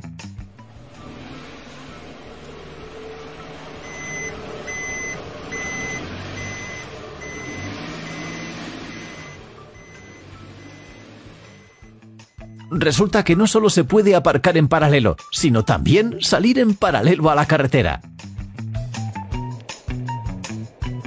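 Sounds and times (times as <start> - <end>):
truck engine running: 0.0 - 13.6, 18.3 - 21.0
tyres pushing through snow: 0.6 - 11.9
reversing beep: 3.8 - 11.9.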